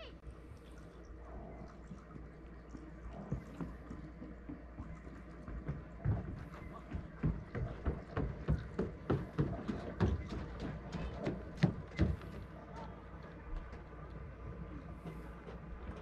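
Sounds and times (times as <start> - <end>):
footsteps on wooden jetty: 3.3 - 16.0.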